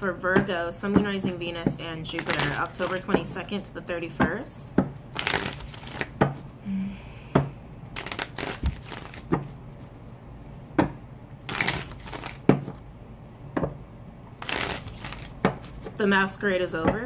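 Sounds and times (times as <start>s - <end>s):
cards rustling: 2.1s - 3.2s, 5.1s - 6.2s, 8.0s - 9.4s, 11.5s - 12.8s, 14.4s - 16.0s
cards slapping while shuffled: 2.1s - 3.2s, 5.2s - 6.4s, 8.0s - 9.5s, 11.5s - 12.8s, 14.4s - 16.0s.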